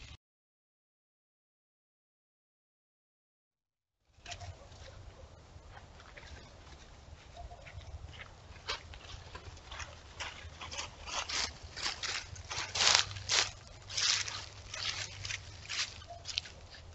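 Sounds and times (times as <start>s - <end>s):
animal footsteps on dry leaves: 4.2s - 16.9s.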